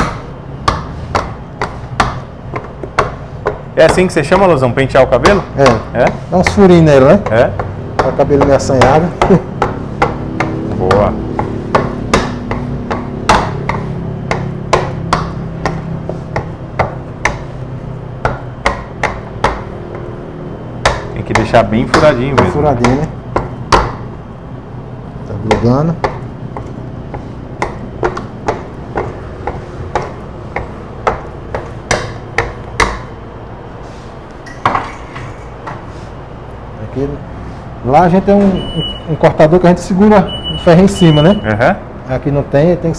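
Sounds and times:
dough docker knocking on stone counter: 7.2 - 17.5
dough docker tapping on counter: 20.8 - 24.1, 27.6 - 33.1.

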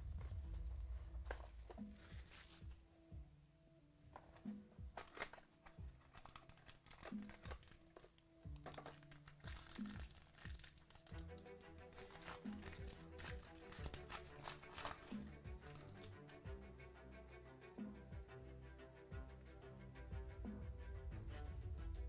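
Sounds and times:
quiet background music: 0.0 - 22.0
foil pack crinkling and tearing: 1.2 - 2.6, 5.0 - 16.2
cardboard box being opened: 4.3 - 10.4.

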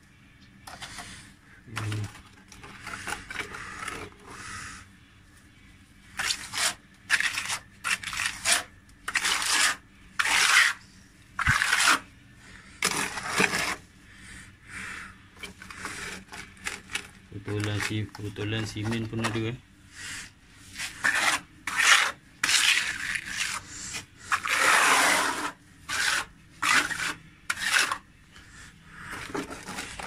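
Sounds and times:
plaster scraping on wall: 0.7 - 4.5, 6.2 - 10.8, 11.4 - 12.1, 12.8 - 13.8, 15.4 - 19.4, 20.7 - 28.1, 29.0 - 30.0.

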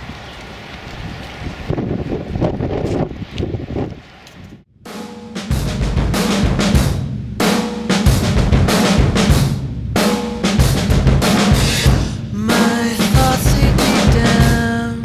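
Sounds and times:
background music with heavy drum beat: 4.8 - 14.9.

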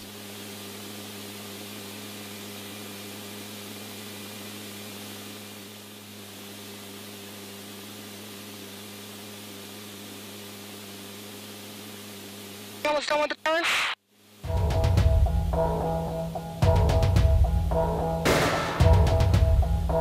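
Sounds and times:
low hum: 14.3 - 20.0.

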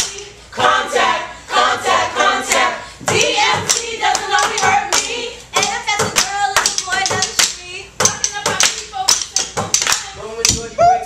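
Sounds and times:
young voices chanting: 0.0 - 7.1
drumstick strikes: 2.5 - 10.8.

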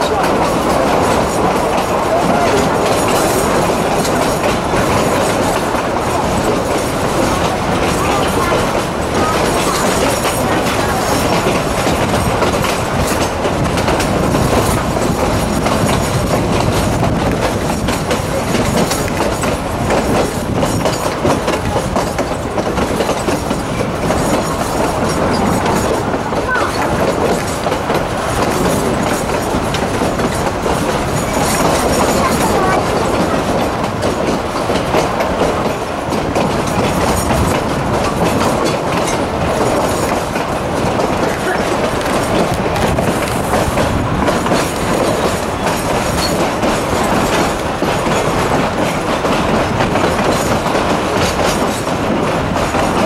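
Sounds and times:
train wheels rumbling on rail: 0.0 - 53.0
wheels clicking over rail joints: 0.0 - 53.0.

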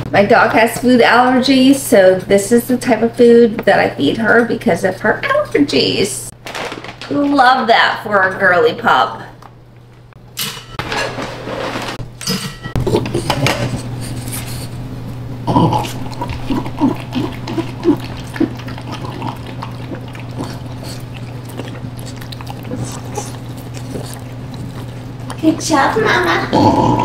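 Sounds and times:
steady low hum: 0.0 - 27.0
dog eating from metal bowl: 15.8 - 26.0.

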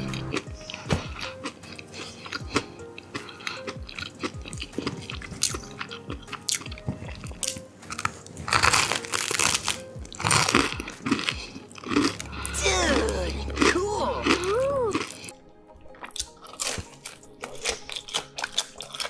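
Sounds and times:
chewing and wet mouth clicks: 0.0 - 8.9, 13.5 - 19.0
crunch of bread bitten: 0.0 - 19.0
soft background music: 0.0 - 19.0.

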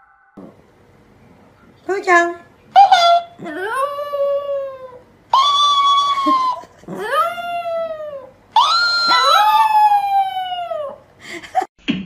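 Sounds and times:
dog howling: 2.8 - 11.0.

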